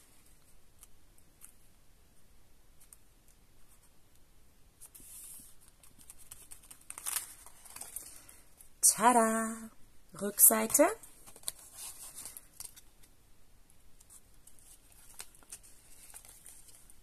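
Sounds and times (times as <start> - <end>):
paper rubbing and rustling: 4.8 - 8.3, 10.7 - 13.0, 14.0 - 17.0.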